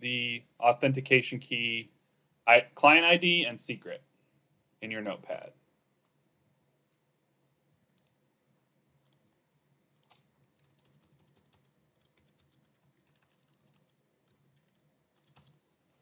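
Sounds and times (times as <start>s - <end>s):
typing on computer keyboard: 10.0s - 15.6s.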